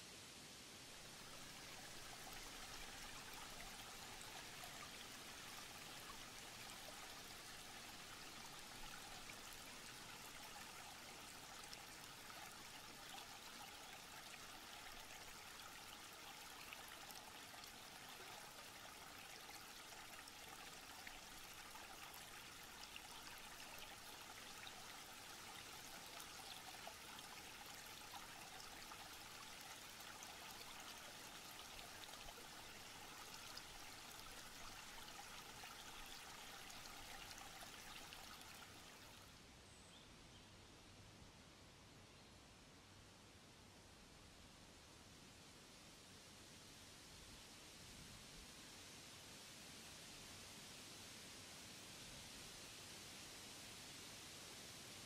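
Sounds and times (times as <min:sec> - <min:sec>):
stream babbling over stones: 0:01.0 - 0:39.2.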